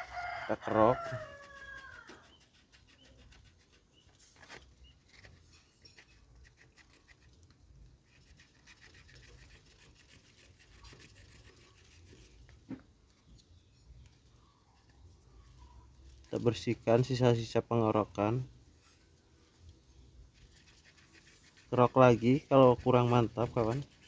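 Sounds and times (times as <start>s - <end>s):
knife scraping wood: 0.1s - 12.7s, 20.3s - 24.0s.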